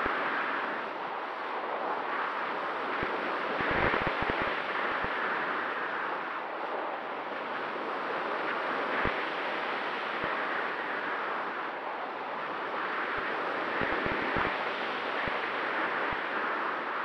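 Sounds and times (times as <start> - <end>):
wind buffeting microphone: 0.0 - 7.0, 10.2 - 16.6.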